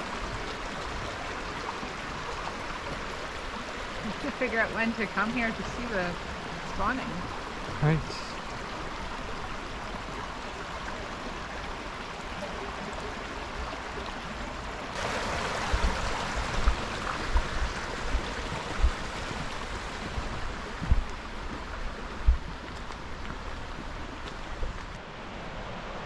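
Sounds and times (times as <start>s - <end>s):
creek water rushing: 0.0s - 26.0s
short low thumps: 20.1s - 21.6s.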